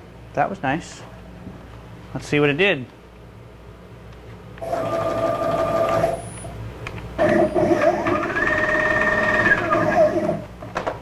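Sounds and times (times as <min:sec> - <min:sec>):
stepper motor whine: 0:07.2 - 0:10.5.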